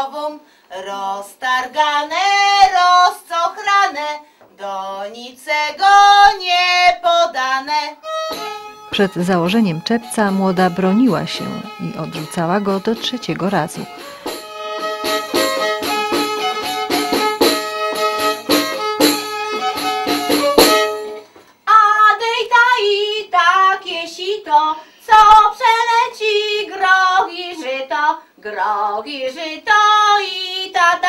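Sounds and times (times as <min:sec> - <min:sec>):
woman singing unaccompanied: 0:00.0 - 0:08.0, 0:08.9 - 0:14.0, 0:21.6 - 0:31.0
fiddle playing fast tune: 0:08.4 - 0:21.0.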